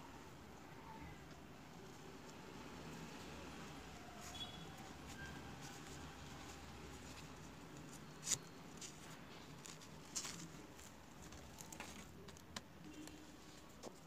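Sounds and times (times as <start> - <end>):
belt rustling: 4.2 - 14.0.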